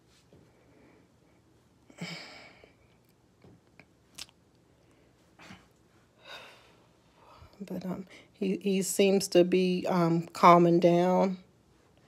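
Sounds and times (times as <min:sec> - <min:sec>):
person sighing: 0:01.9 - 0:02.8.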